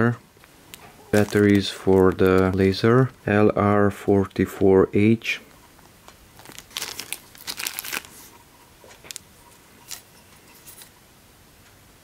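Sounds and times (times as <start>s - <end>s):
plastic bags crinkling: 0.7s - 3.1s, 5.8s - 10.8s.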